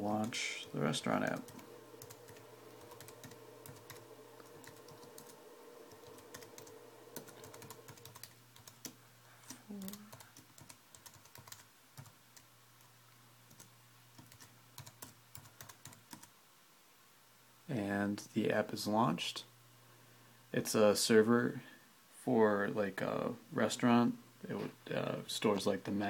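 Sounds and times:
low steady hum: 0.0 - 26.0
keyboard typing clicks: 1.2 - 12.5, 13.5 - 16.3.

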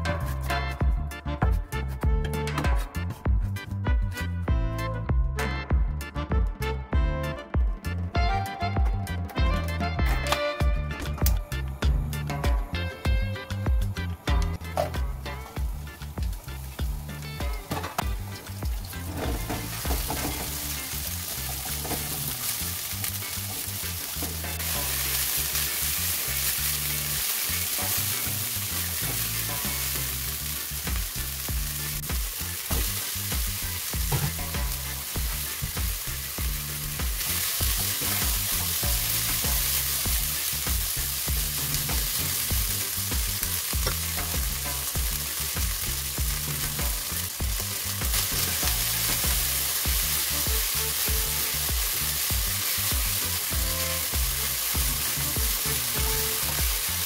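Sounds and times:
food sizzling in hot oil: 13.6 - 57.0.

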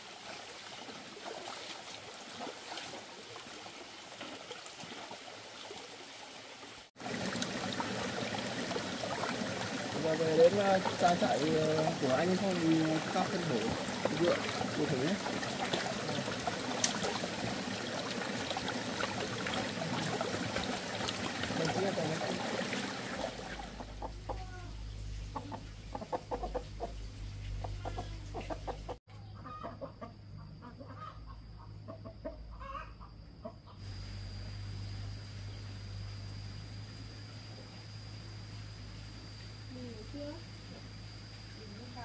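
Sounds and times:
chickens clucking: 23.2 - 33.8.

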